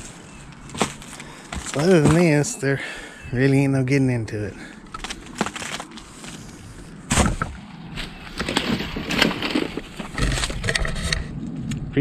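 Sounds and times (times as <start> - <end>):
footsteps through dry leaves: 0.0 - 2.5, 5.0 - 10.4
twigs cracking: 0.0 - 2.6, 4.5 - 11.1
branches rustling: 0.0 - 11.4.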